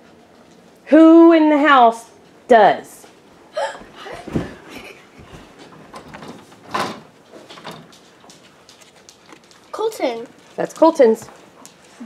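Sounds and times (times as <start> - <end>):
rustling of handled objects: 4.1 - 12.0.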